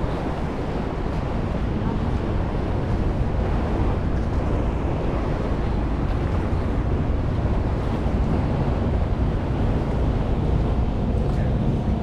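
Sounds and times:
boat engine rumble: 0.0 - 12.0
water rushing along hull: 0.0 - 12.0
wind buffeting microphone: 0.0 - 12.0.

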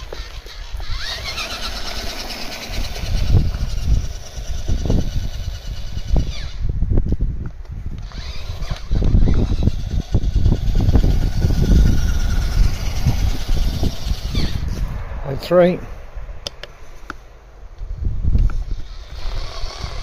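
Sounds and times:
electric motors whining: 0.0 - 6.7, 7.9 - 14.7, 18.6 - 20.0.

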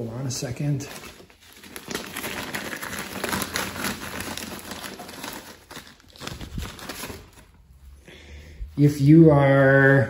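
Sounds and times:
rustling and crinkling: 0.3 - 7.9.

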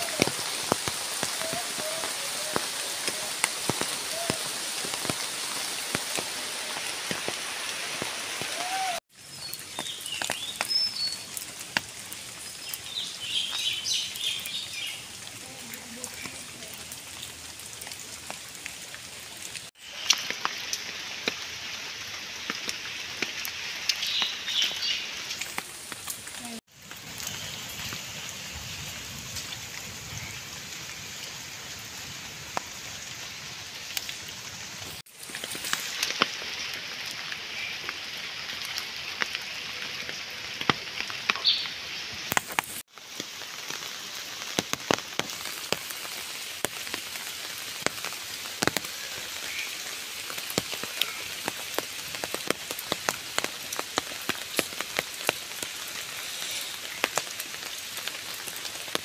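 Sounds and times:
rain falling on wet ground: 0.0 - 59.0.

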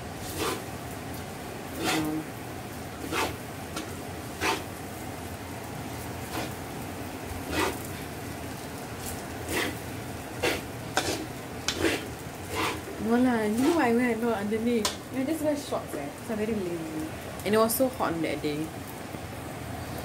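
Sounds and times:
frying sizzle: 0.0 - 20.0
metal spatula scraping a wok: 0.2 - 0.6, 1.8 - 2.2, 3.0 - 3.4, 4.4 - 4.7, 6.3 - 6.6, 7.5 - 7.8, 9.1 - 9.8, 10.4 - 13.9.

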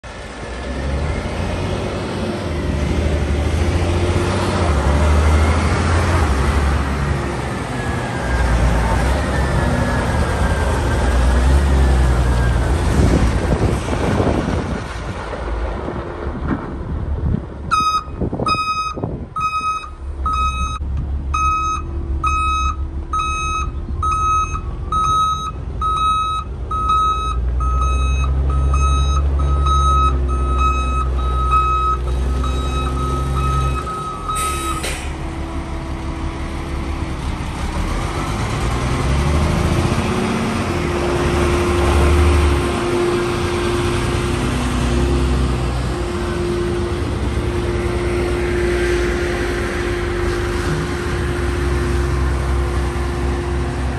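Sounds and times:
truck engine revving: 0.0 - 17.8, 19.4 - 53.9
diesel engine running: 0.0 - 53.9
reverse alarm beeping: 17.7 - 20.8, 21.4 - 34.8
short air hiss: 34.4 - 35.2.

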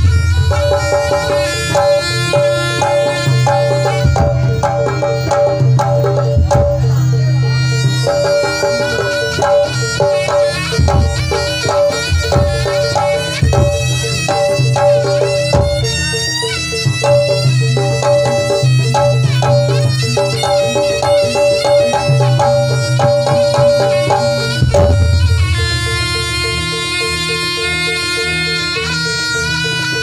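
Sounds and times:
hand drum strokes: 0.0 - 28.2
shrill reed trumpet melody: 7.2 - 30.0.

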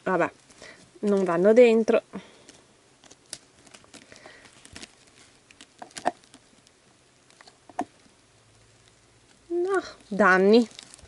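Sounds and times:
slime clicking and crackling: 2.4 - 11.0.

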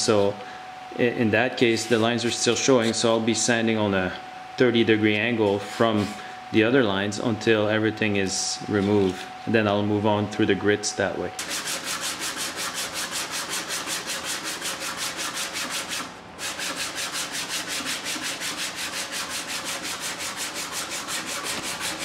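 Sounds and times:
sandpaper rubbing on wood: 1.7 - 3.1, 11.4 - 22.0.

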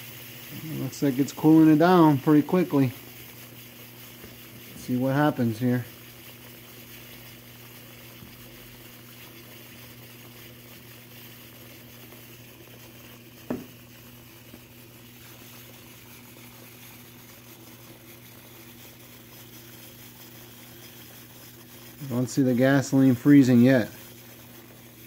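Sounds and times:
liquid nitrogen boiling hiss: 0.0 - 25.0
short knock: 13.5 - 13.7.

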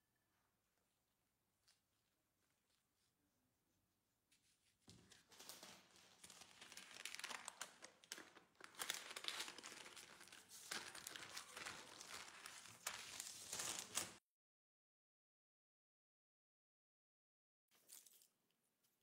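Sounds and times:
plastic gloves rustling: 4.4 - 14.2
baking paper crinkling: 4.8 - 14.2.

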